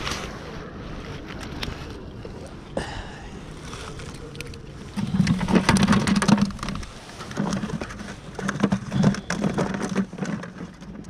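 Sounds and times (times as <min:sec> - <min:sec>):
fish flapping in plastic bucket: 0:04.9 - 0:11.0.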